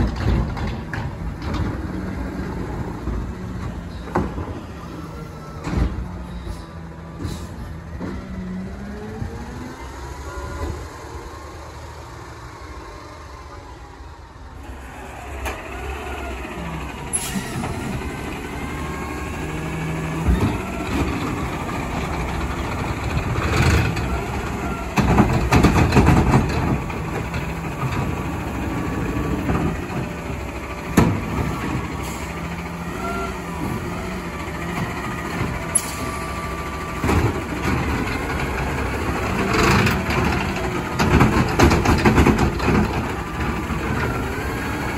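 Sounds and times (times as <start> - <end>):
garbage truck engine running: 0.0 - 44.9
air brake hisses: 6.3 - 7.7, 17.1 - 17.7.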